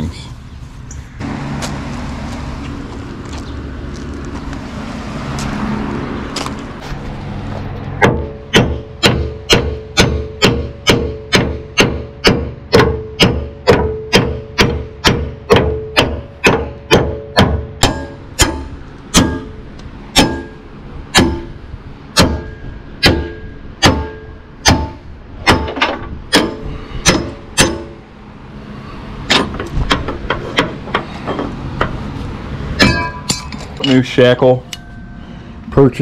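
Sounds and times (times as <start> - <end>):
hammer striking steel chisel: 8.0 - 19.6, 20.2 - 20.6, 21.2 - 21.5, 22.2 - 28.0, 32.8 - 33.6.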